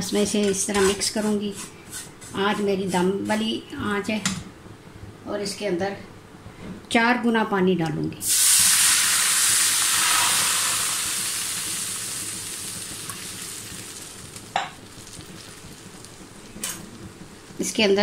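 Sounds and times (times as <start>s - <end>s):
water sizzling in hot pan: 8.2s - 18.0s.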